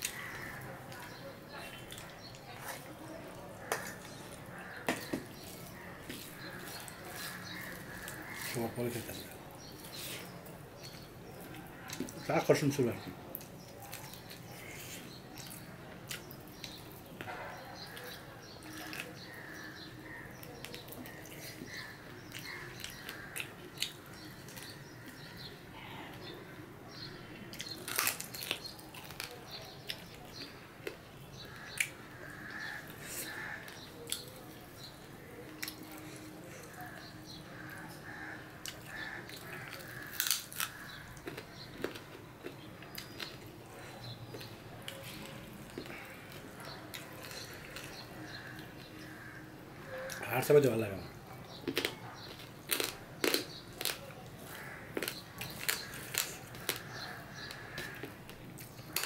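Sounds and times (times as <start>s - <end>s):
chewing and biting: 0.0s - 12.2s, 27.5s - 49.0s, 51.5s - 59.0s
fingers mixing food on steel plate: 0.0s - 12.3s
wet mouth smacks and chewing: 51.6s - 59.0s.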